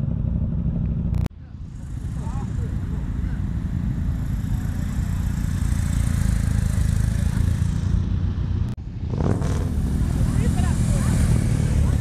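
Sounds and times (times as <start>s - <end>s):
motorcycle engines idling: 0.0s - 8.8s, 9.7s - 12.0s
motorcycle engine revving away: 4.1s - 8.3s, 9.0s - 12.0s.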